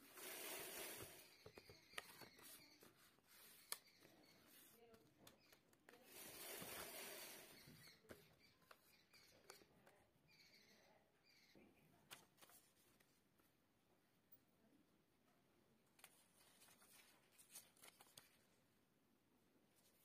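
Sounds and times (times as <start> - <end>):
paper crinkling and tapping: 1.4 - 6.8, 16.0 - 18.5
paper rustling on table: 5.9 - 8.9, 16.0 - 18.6.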